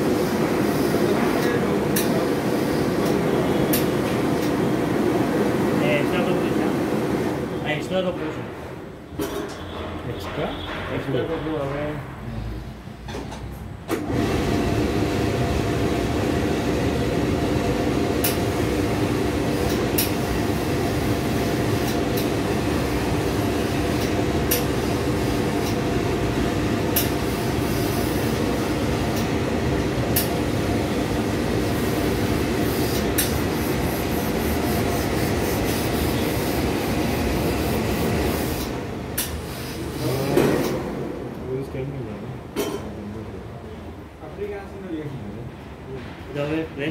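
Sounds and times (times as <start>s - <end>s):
vacuum blower motor hum: 14.0s - 19.4s.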